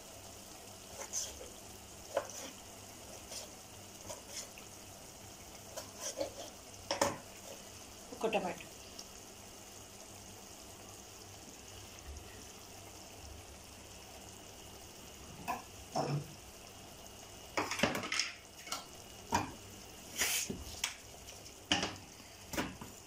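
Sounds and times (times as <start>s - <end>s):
vegetables sizzling in a pot: 0.0s - 23.0s
ladle scraping a pot: 5.8s - 6.6s.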